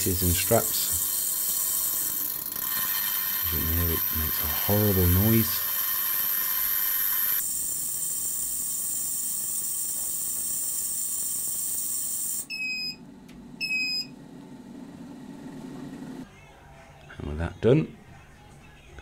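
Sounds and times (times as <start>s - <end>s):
ultrasonic cleaner high-pitched whine: 0.0s - 12.5s
timer beeps: 12.5s - 13.0s, 13.6s - 14.1s.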